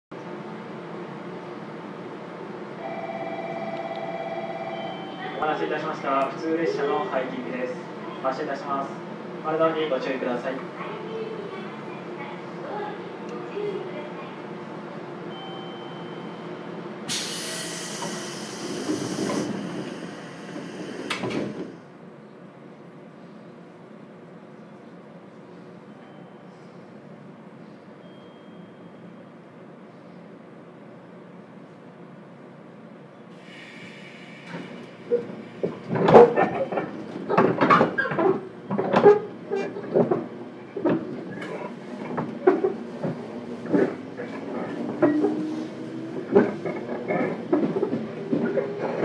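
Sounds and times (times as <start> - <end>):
train low rumble: 0.2 - 28.3, 29.0 - 49.0
air hiss of train doors: 17.1 - 21.8, 33.3 - 35.9
doors shutting heavily: 17.1 - 21.8.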